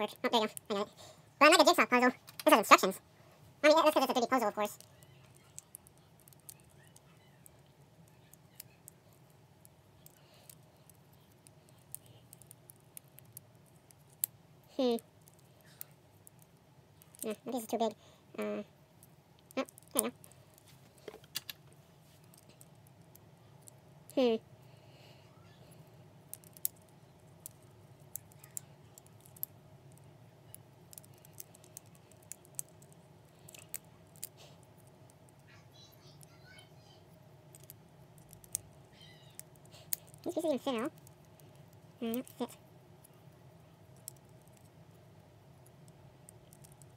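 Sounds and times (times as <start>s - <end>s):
low steady hum: 0.0s - 46.9s
plastic puzzle pieces clicking: 3.9s - 9.3s, 10.0s - 14.3s, 15.2s - 17.9s, 19.4s - 20.3s, 21.0s - 24.2s, 26.3s - 35.4s, 37.5s - 42.5s, 44.0s - 44.7s, 45.6s - 46.9s.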